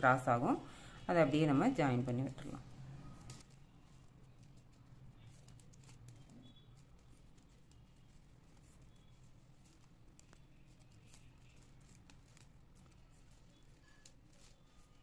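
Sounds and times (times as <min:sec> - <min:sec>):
plastic wire strands clicking: 0:03.2 - 0:15.0.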